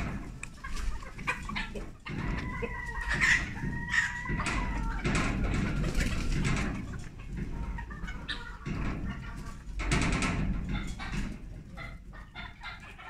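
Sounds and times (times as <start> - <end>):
chickens clucking: 0.0 - 13.0
rooster crowing: 2.2 - 5.2.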